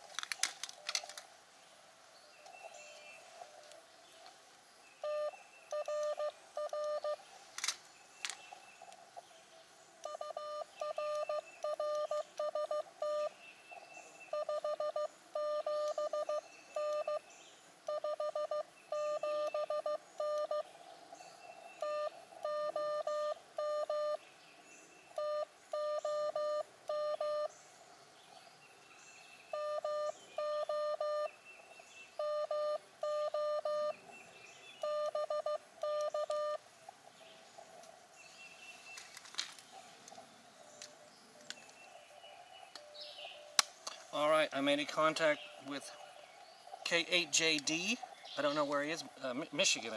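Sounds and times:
sharp clicks: 0:00.0 - 0:01.3, 0:07.6 - 0:09.0, 0:43.6 - 0:44.1
morse code beeps: 0:05.0 - 0:07.2, 0:10.0 - 0:13.4, 0:14.3 - 0:17.2, 0:17.9 - 0:20.6, 0:21.8 - 0:24.2, 0:25.2 - 0:27.5, 0:29.5 - 0:31.3, 0:32.2 - 0:34.0, 0:34.8 - 0:36.6.

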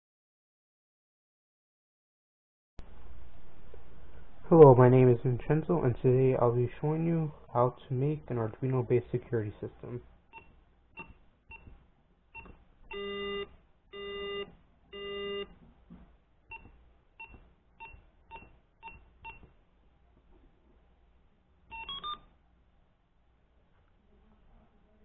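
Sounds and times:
keypad key beeps: 0:16.5 - 0:19.5, 0:21.7 - 0:22.3.

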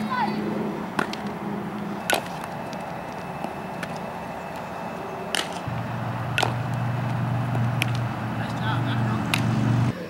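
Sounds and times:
steady background hum: 0:00.0 - 0:10.0
softball smacks: 0:02.0 - 0:02.5, 0:05.3 - 0:05.7, 0:06.3 - 0:06.8, 0:07.5 - 0:08.1.

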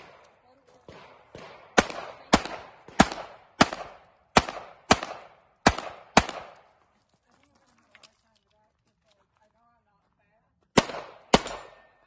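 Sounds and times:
pistol shots with echo: 0:00.0 - 0:06.8, 0:10.7 - 0:12.0.

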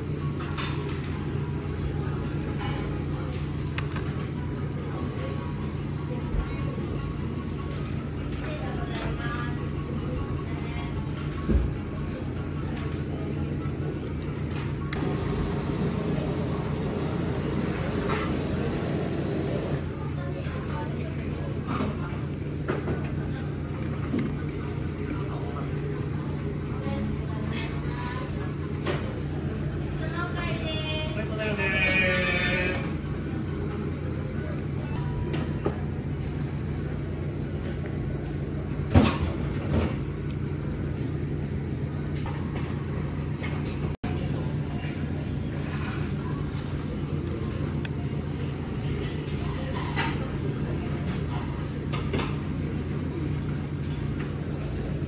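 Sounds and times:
restaurant background rumble: 0:00.0 - 0:55.0.

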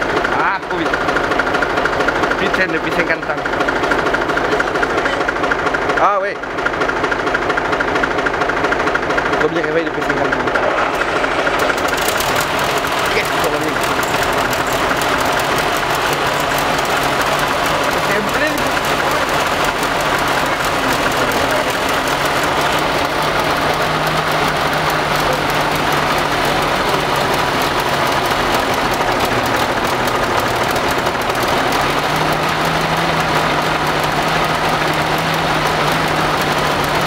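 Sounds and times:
tractor engine idling: 0:00.0 - 0:37.0.

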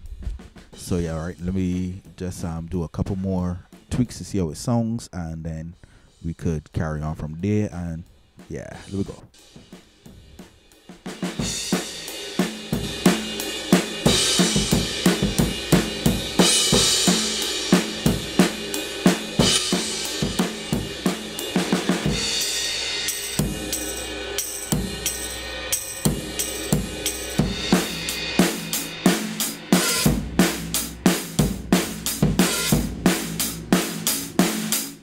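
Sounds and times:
drum kit beat with cymbals: 0:00.0 - 0:04.9, 0:05.8 - 0:35.0.

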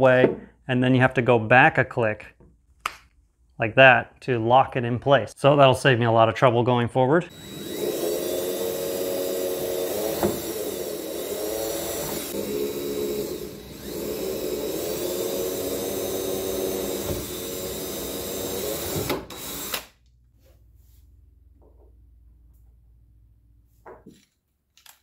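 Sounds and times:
cordless drill boring holes: 0:07.3 - 0:19.9.

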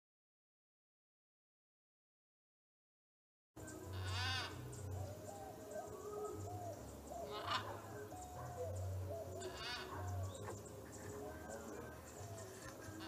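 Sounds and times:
birds warbling: 0:03.6 - 0:13.0
macaw squawks: 0:03.9 - 0:04.6, 0:07.2 - 0:11.0.

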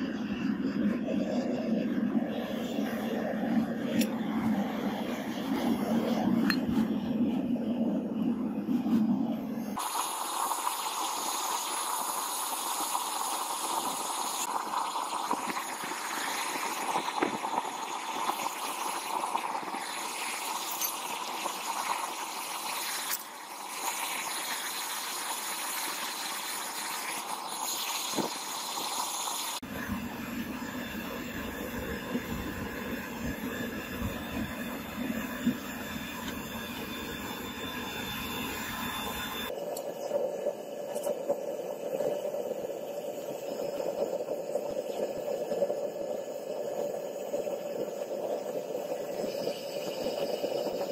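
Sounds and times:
gas burner rushing with blower: 0:00.0 - 0:50.9.

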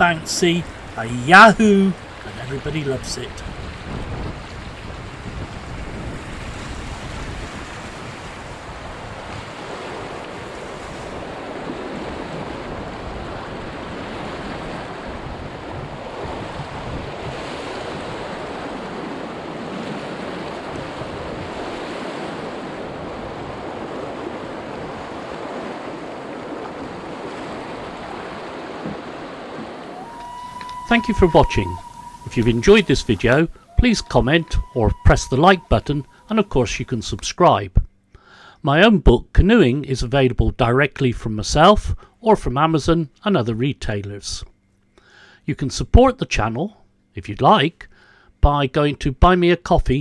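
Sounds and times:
wind rumble on microphone: 0:03.3 - 0:36.6
river rapid rushing: 0:27.2 - 0:36.9.

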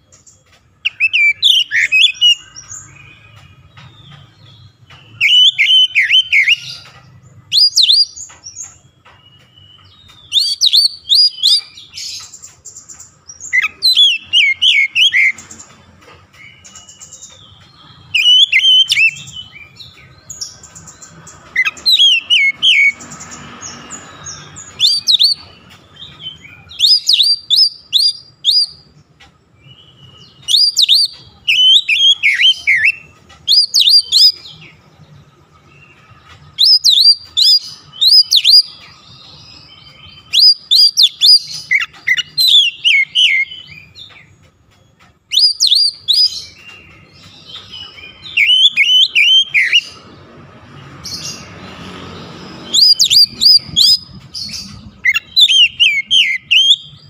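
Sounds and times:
bird singing whistled phrases: 0:00.8 - 0:03.3, 0:05.1 - 0:06.7, 0:09.3 - 0:12.3, 0:13.5 - 0:15.4, 0:18.0 - 0:19.7, 0:24.7 - 0:25.5, 0:26.2 - 0:28.9, 0:29.6 - 0:34.6, 0:36.5 - 0:38.8, 0:39.9 - 0:44.0, 0:45.3 - 0:46.6, 0:47.6 - 0:49.9, 0:52.7 - 0:54.0, 0:55.0 - 0:57.0.

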